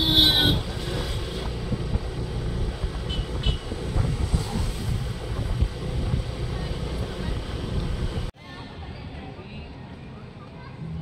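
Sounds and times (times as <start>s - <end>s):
wind rumbling on microphone: 0.0s - 8.3s
road and traffic noise: 0.0s - 11.0s.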